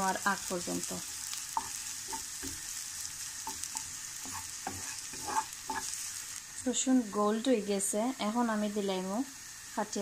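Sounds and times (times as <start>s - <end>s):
garlic sizzling in hot oil: 0.0s - 10.0s
spatula scraping a pan: 1.5s - 6.4s.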